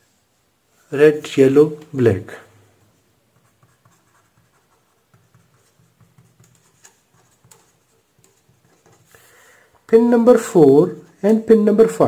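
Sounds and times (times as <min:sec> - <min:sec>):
pen scratching on paper: 0:03.4 - 0:09.1.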